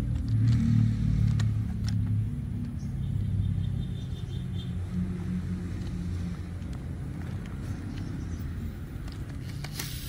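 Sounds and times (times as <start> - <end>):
low engine rumble: 0.0 - 10.0
plastic toy parts clicking: 1.2 - 2.8.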